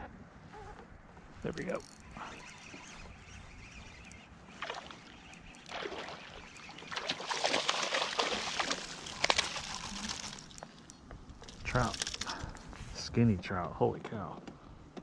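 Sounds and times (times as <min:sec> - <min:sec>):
fish thrashing and splashing in water: 0:04.5 - 0:10.9.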